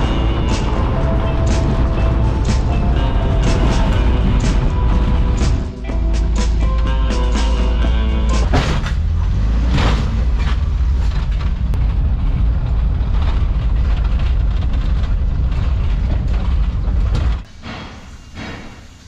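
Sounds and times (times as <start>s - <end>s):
van engine rumble: 0.0s - 17.5s
road noise: 0.0s - 17.6s
knocks and rattles: 8.3s - 18.8s.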